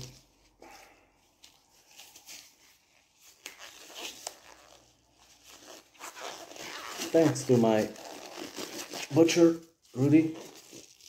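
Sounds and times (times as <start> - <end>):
disposable gloves rustling: 0.0 - 11.0.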